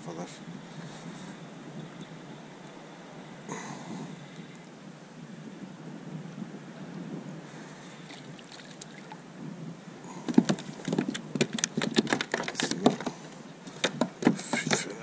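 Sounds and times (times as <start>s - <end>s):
low water noise: 0.0s - 15.0s
fish flapping on plastic deck: 10.2s - 15.0s.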